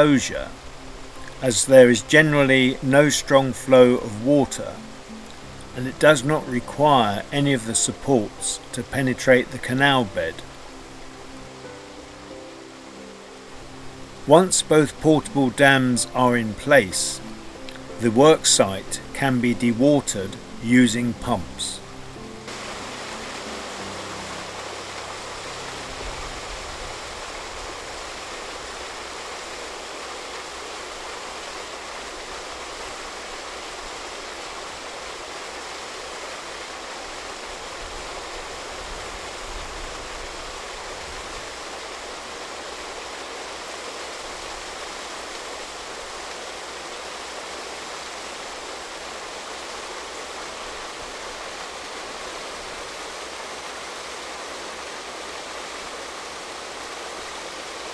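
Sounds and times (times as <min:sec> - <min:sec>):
water gushing from hose: 0:22.4 - 0:57.9.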